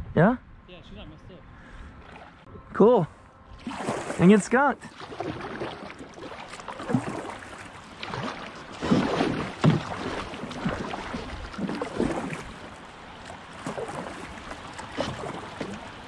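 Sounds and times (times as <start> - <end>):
paddle strokes splashing: 1.9 - 2.5, 3.6 - 16.0
river water rushing: 3.6 - 16.0
water slapping against kayak hull: 3.6 - 16.0.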